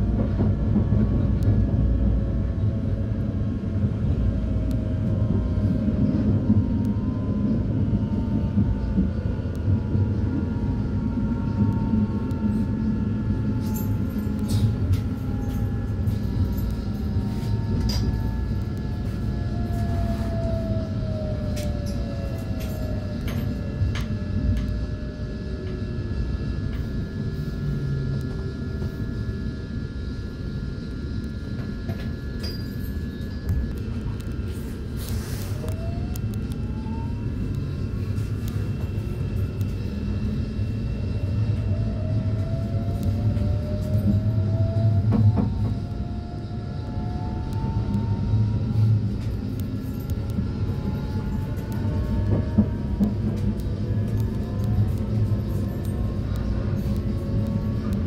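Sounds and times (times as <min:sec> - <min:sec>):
electric traction whine: 0:00.0 - 0:58.0
train wheels rumbling: 0:33.8 - 0:58.0.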